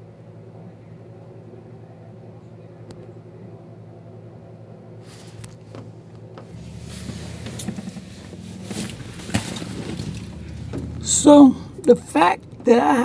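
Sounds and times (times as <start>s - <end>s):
phone handling rustling and knocks: 5.6s - 11.2s
machine humming: 6.3s - 13.0s.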